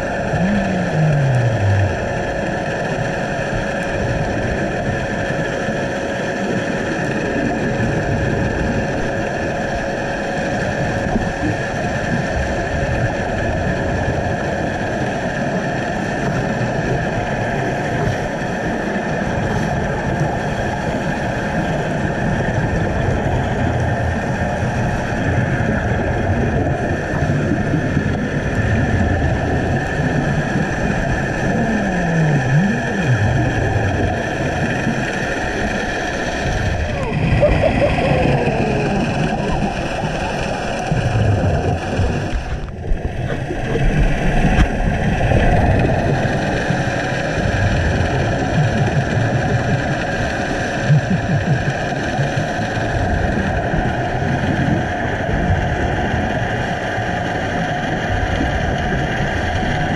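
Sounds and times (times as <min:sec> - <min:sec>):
low hum changing pitch: 0:00.0 - 0:04.6, 0:25.4 - 0:52.0
underwater rushing noise: 0:00.0 - 0:59.9.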